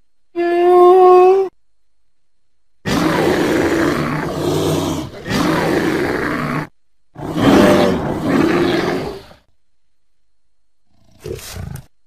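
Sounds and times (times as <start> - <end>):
bear growling and roaring: 2.9 - 9.5, 10.8 - 11.9.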